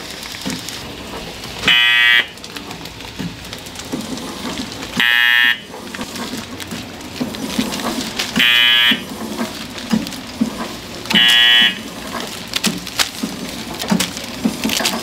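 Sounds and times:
packaging machine clacking: 0:00.0 - 0:15.0
electric buzzer: 0:01.6 - 0:02.4, 0:05.0 - 0:05.6, 0:08.4 - 0:09.0, 0:11.2 - 0:11.8.

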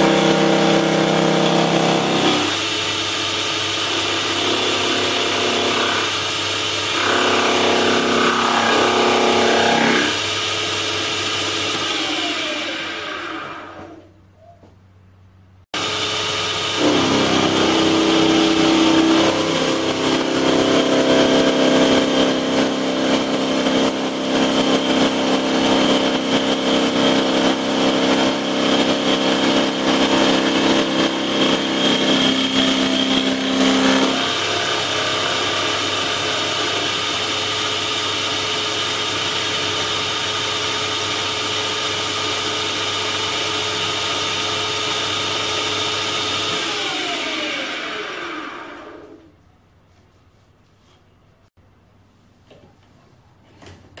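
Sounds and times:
lathe spindle spinning freely: 0:00.0 - 0:14.0, 0:15.8 - 0:49.2
lathe milling with ringing whine: 0:16.3 - 0:38.2.

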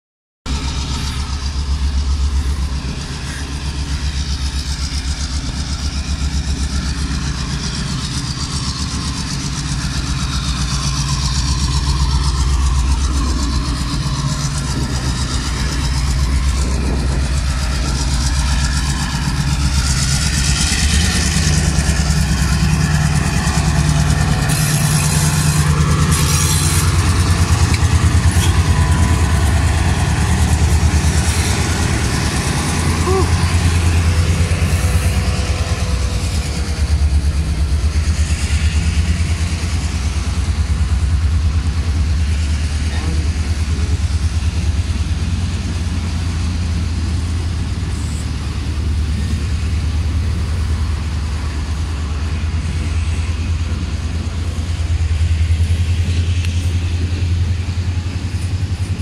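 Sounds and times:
diesel locomotive engine rumble: 0:00.4 - 0:59.0
brief high-pitched noises: 0:32.9 - 0:33.6.

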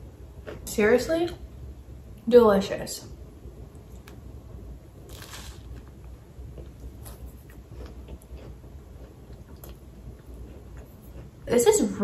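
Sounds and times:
low steady hum: 0:00.0 - 0:12.0
person chewing toast: 0:05.1 - 0:11.4.

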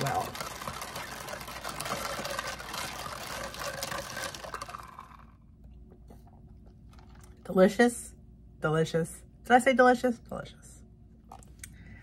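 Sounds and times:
liquid sloshing with clicks: 0:00.0 - 0:07.5.

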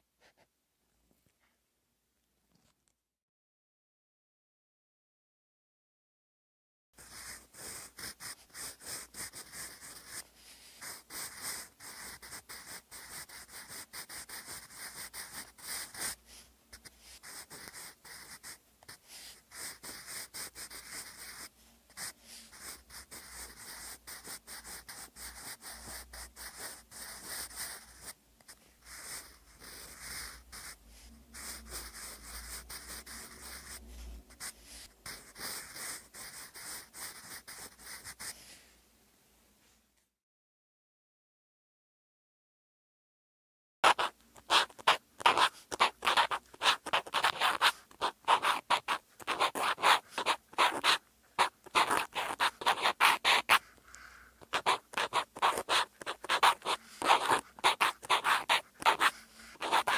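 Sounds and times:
pencil scratching on paper: 0:07.0 - 0:38.4, 0:43.8 - 0:59.9.

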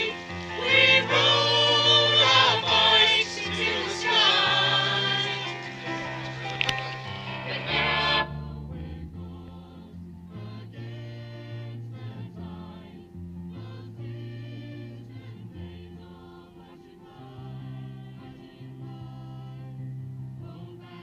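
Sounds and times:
choir singing a carol: 0:00.0 - 0:21.0
electronic keyboard low notes: 0:00.0 - 0:21.0.

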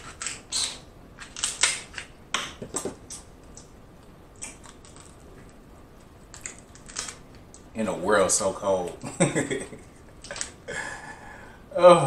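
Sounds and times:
shell cracking: 0:01.2 - 0:03.7, 0:04.3 - 0:05.6, 0:06.2 - 0:07.7, 0:09.8 - 0:10.6.

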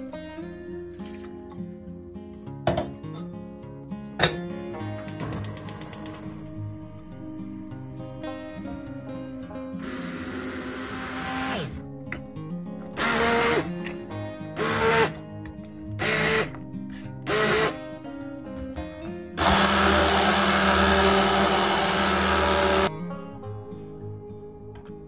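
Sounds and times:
immersion blender running: 0:09.8 - 0:11.8, 0:13.0 - 0:13.7, 0:14.6 - 0:15.1, 0:16.0 - 0:16.5, 0:17.3 - 0:17.8, 0:19.4 - 0:22.9.

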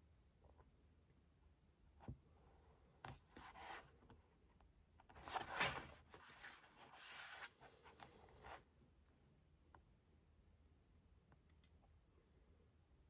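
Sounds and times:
book page turning: 0:05.1 - 0:08.6.

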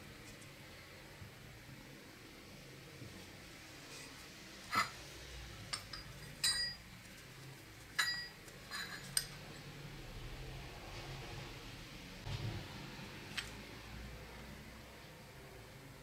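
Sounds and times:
bicycle bell clinking: 0:05.9 - 0:06.9, 0:08.0 - 0:09.0.

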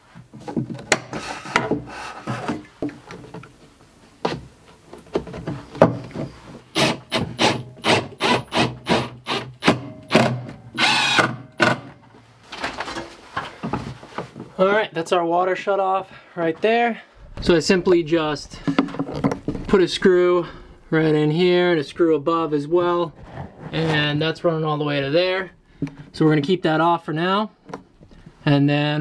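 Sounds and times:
drill driving screws into wood: 0:06.7 - 0:11.9.

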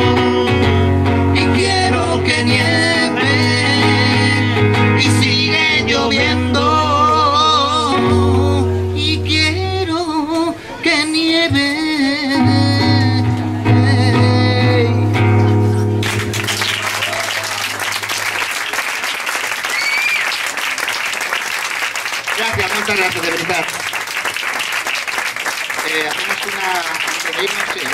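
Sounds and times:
live band singing and playing: 0:00.0 - 0:17.2
audience applauding: 0:16.0 - 0:27.9.

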